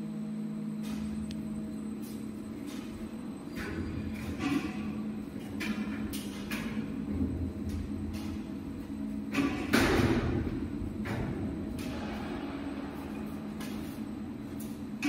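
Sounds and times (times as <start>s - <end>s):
electric drive humming: 0.0s - 15.0s.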